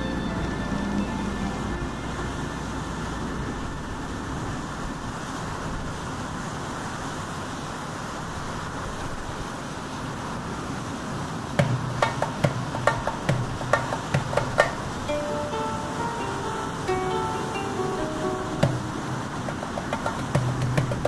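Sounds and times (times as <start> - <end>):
plucked-string music: 0.0 - 3.5, 11.6 - 21.0
storm waves breaking: 0.0 - 21.0
wind: 0.0 - 21.0.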